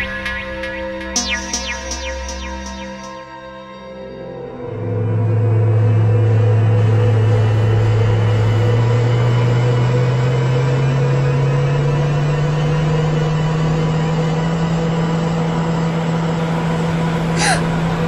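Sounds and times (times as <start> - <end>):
low hum rising in pitch: 0.0 - 17.2.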